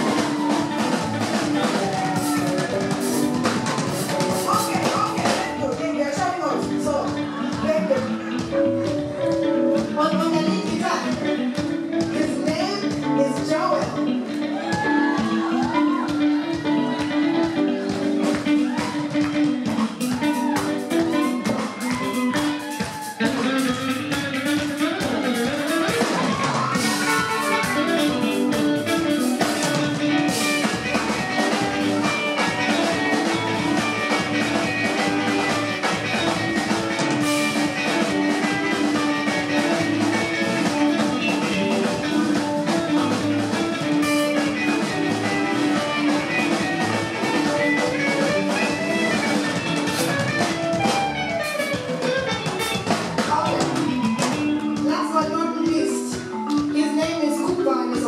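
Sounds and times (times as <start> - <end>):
drums: 0.0 - 58.0
electric guitar: 0.0 - 58.0
live band playing: 0.0 - 58.0.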